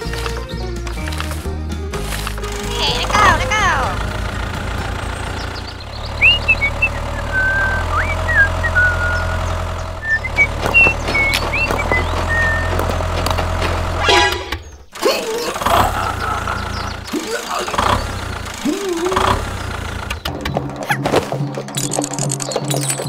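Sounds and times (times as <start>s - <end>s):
toy tractor engine drone: 2.0s - 20.4s
chirping whistles: 5.9s - 12.8s
sharp clicks: 21.7s - 23.0s.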